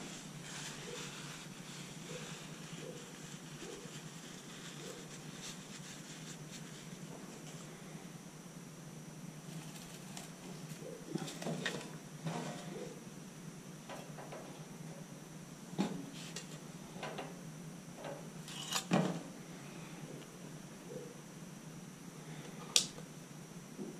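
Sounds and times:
dry straw rustling and crackling: 0:00.0 - 0:07.8, 0:09.4 - 0:11.4
low steady hum: 0:00.0 - 0:23.9.

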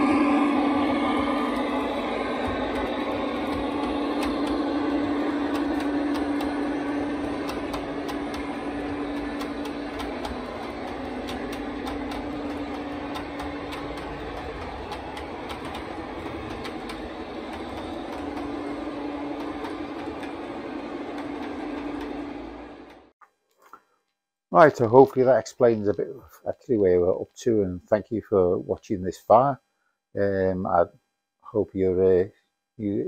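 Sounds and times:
model train motor hum: 0:00.0 - 0:23.1
wheels clicking over rail joints: 0:01.4 - 0:23.0.

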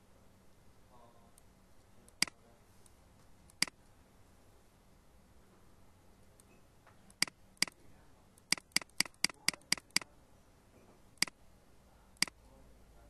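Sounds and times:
computer mouse clicking: 0:02.1 - 0:03.8, 0:06.4 - 0:07.8, 0:08.4 - 0:10.1, 0:11.2 - 0:11.4.

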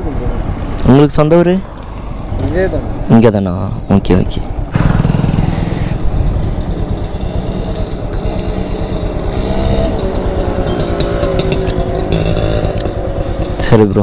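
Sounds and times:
motorcycle engine idling: 0:04.4 - 0:14.0.

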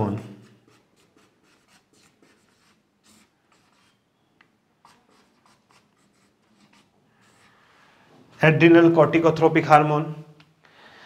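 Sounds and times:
marker scratching on whiteboard: 0:00.1 - 0:04.2, 0:04.8 - 0:07.6.

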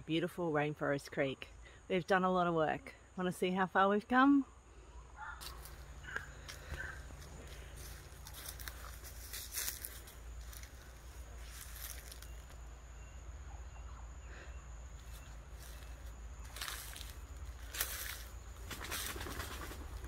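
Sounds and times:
footsteps crunching through dry leaves: 0:05.4 - 0:12.7, 0:15.0 - 0:19.8.

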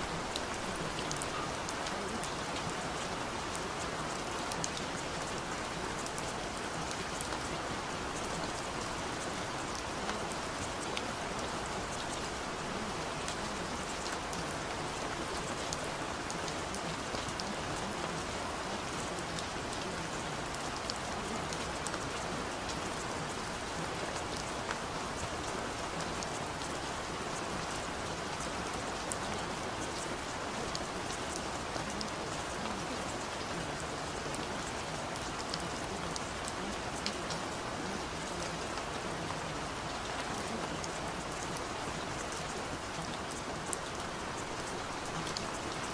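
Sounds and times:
steady rain hiss: 0:00.0 - 0:45.9
raindrop ticks: 0:00.1 - 0:07.5, 0:19.0 - 0:45.9.

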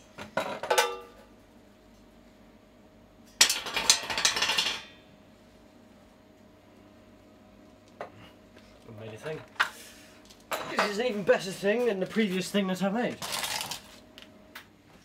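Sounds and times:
metal basket clattering on concrete: 0:03.4 - 0:04.9.

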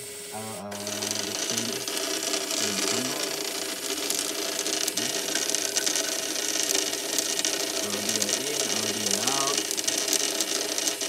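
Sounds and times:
small pump and motors running: 0:00.0 - 0:11.0
steady hiss: 0:00.0 - 0:11.0
fine ticking: 0:00.7 - 0:11.0.

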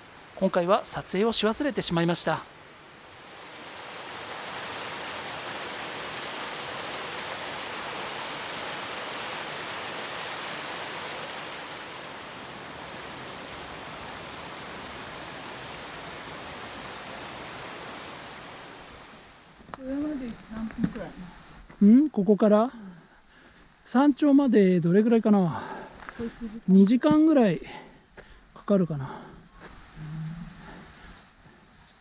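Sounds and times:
stream water rushing: 0:00.0 - 0:19.6.

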